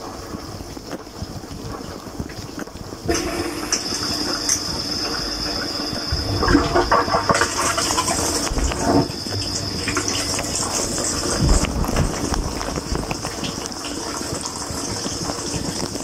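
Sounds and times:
water spraying inside dishwasher: 0:00.0 - 0:16.0.

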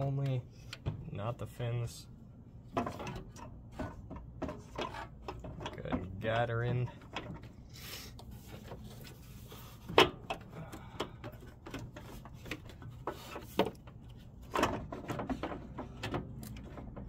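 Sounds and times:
plastic parts knocking and clicking: 0:02.7 - 0:06.2, 0:09.8 - 0:17.0.

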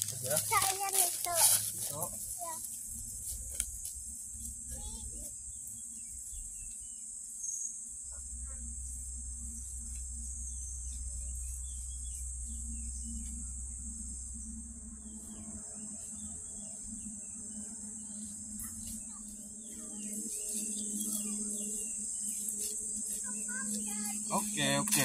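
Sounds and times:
insect chorus drone: 0:00.0 - 0:25.0
low rumble: 0:07.8 - 0:22.4.

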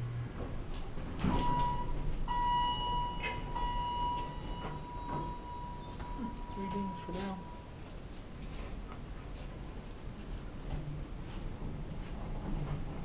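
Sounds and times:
elevator running hum: 0:00.0 - 0:13.0
elevator doors sliding open: 0:00.2 - 0:07.6
high-pitched tone: 0:01.5 - 0:07.7.

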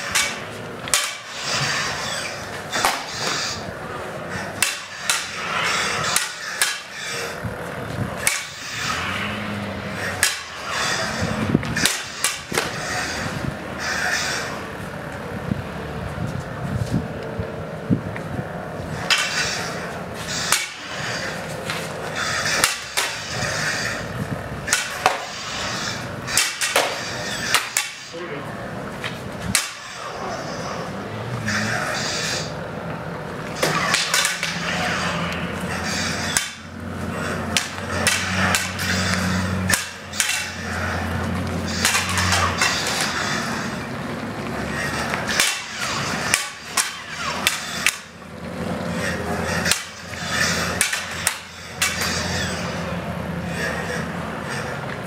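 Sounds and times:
lightsaber blades clacking: 0:00.0 - 0:15.8, 0:18.1 - 0:55.0
steady background noise: 0:00.0 - 0:55.0
plastic lightsaber blades clacking: 0:00.1 - 0:01.4, 0:04.6 - 0:06.9, 0:10.1 - 0:10.7, 0:26.3 - 0:28.1, 0:29.5 - 0:29.8, 0:33.6 - 0:34.8, 0:37.5 - 0:43.5, 0:45.1 - 0:48.1, 0:49.6 - 0:52.3.

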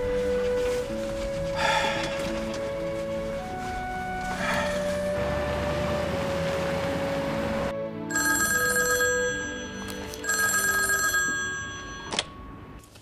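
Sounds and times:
soft background music: 0:00.0 - 0:13.0
telephone bell ringing: 0:08.1 - 0:12.6.

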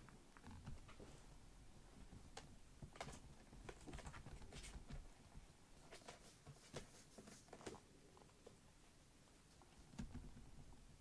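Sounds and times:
kittens' paws pattering on a mat: 0:02.1 - 0:08.6.

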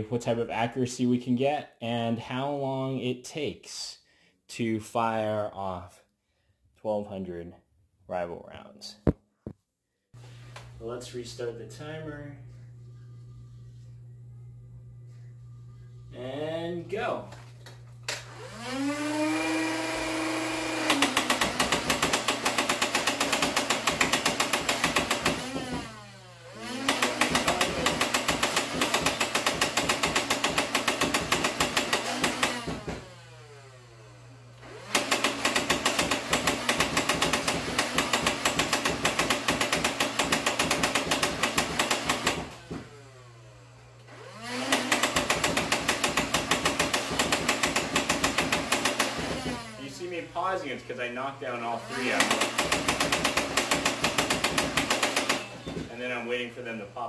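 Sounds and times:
toy blaster motors whirring: 0:18.4 - 0:33.2, 0:44.2 - 0:49.8, 0:51.9 - 0:55.8
rapid rattle of foam shots: 0:20.8 - 0:26.0, 0:26.7 - 0:33.1, 0:34.9 - 0:42.8, 0:44.6 - 0:49.7, 0:52.0 - 0:56.0.

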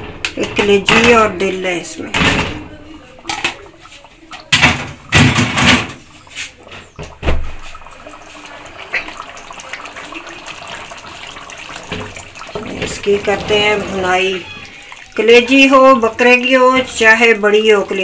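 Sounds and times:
pan cooking noise: 0:00.0 - 0:18.0
meat splashing into a pan: 0:02.0 - 0:15.7.

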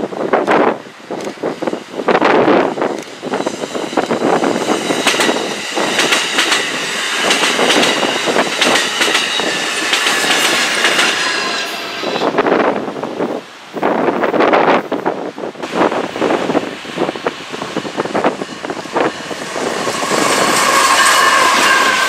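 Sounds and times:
train wheels clicking over rail joints: 0:02.2 - 0:12.2, 0:17.5 - 0:22.0
high-pitched wheel squeal: 0:19.0 - 0:22.0.

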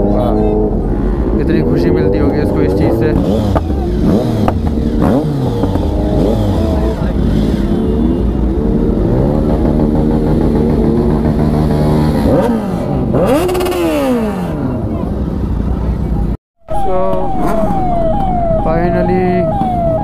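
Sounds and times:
motorcycle engine revving: 0:00.0 - 0:15.8.

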